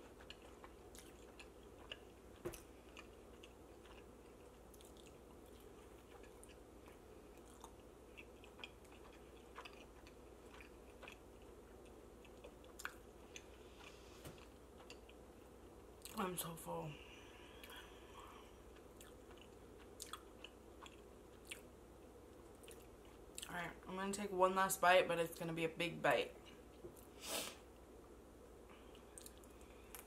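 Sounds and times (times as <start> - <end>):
chewing pizza: 0.0 - 16.3, 17.4 - 21.7, 22.3 - 23.5, 28.7 - 30.0.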